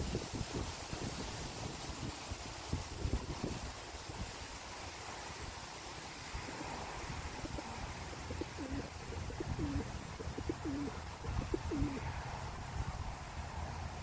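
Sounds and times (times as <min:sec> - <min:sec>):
pigeon cooing: 0:06.5 - 0:12.1.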